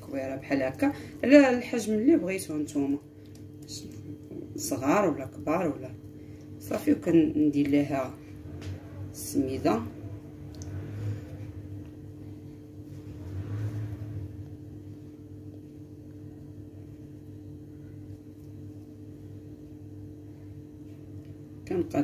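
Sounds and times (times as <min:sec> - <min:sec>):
steady low room hum: 0:00.0 - 0:22.0
dough rolled in semolina: 0:06.9 - 0:21.7.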